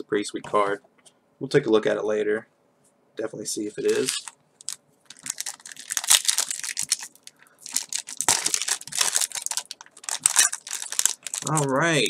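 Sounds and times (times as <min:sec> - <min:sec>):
foil wrapper crinkling and tearing: 0:03.8 - 0:12.0.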